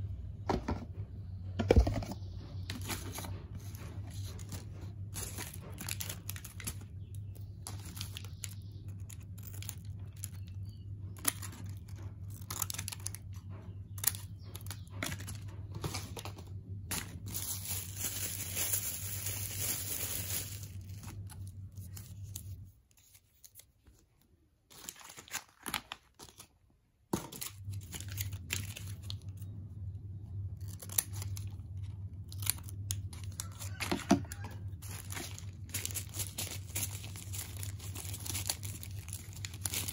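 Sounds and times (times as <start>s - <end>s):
low steady hum: 0.0s - 39.9s
plastic and foil packs crinkling: 1.8s - 39.9s
tearing rustle: 32.3s - 39.9s.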